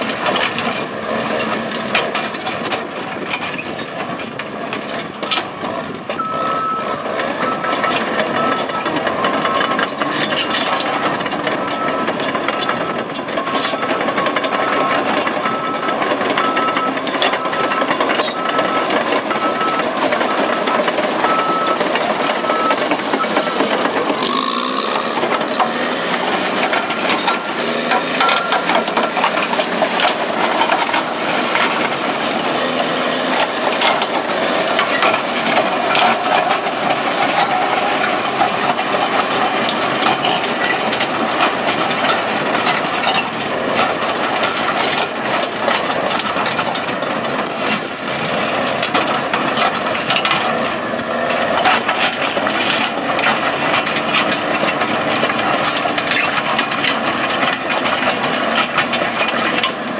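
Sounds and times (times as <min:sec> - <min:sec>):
diesel engine under load: 0:00.0 - 0:59.9
steel tracks clanking: 0:00.0 - 0:59.9.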